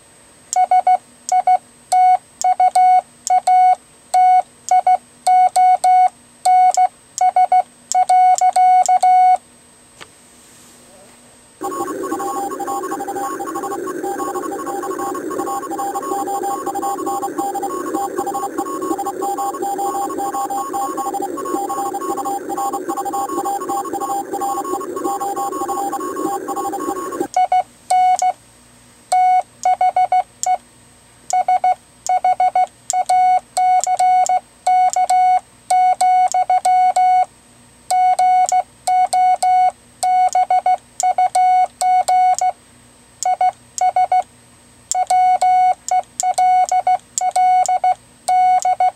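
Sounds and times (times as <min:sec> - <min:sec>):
constant tones: 0:11.6 - 0:27.3
morse code tone: 0:11.6 - 0:27.3.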